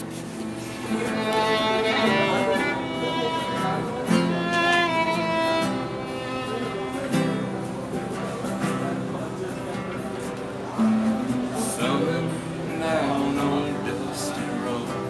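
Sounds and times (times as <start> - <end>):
fiddle melody: 0.0 - 9.1
strummed acoustic guitar: 0.0 - 15.0.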